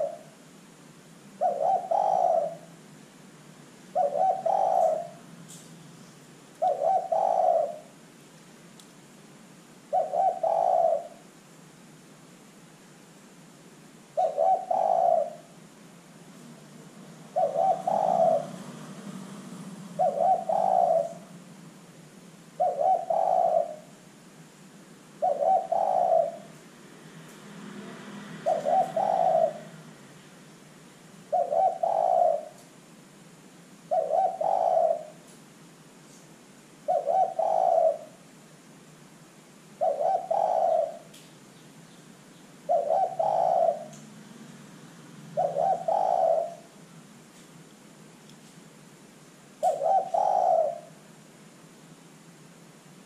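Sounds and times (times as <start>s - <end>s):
dove cooing: 0.0s - 0.4s, 1.3s - 2.8s, 3.9s - 5.4s, 6.6s - 8.0s, 9.9s - 11.3s, 14.1s - 15.6s, 16.6s - 21.6s, 22.5s - 24.0s, 25.2s - 26.6s, 27.8s - 30.0s, 31.2s - 32.7s, 33.9s - 35.3s, 36.8s - 38.3s, 39.8s - 41.2s, 42.6s - 44.3s, 45.2s - 46.8s, 49.6s - 51.1s.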